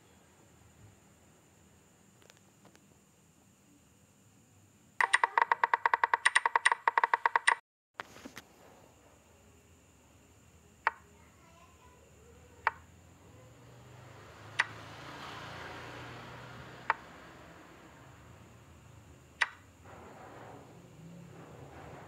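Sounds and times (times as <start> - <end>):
sharp app clicks: 5.0 - 7.6.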